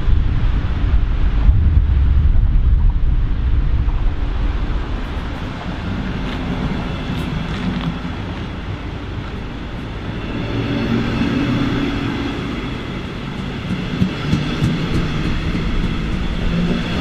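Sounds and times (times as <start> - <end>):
low hum: 0.0 - 17.0
train rumbling past: 0.0 - 17.0
wind buffeting microphone: 0.0 - 17.0.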